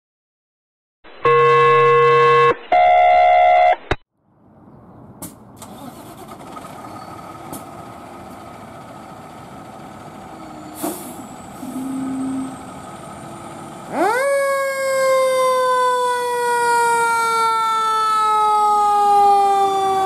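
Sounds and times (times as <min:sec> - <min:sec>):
fire engine diesel engine running: 0:05.6 - 0:14.7
short hiss: 0:10.8 - 0:11.8.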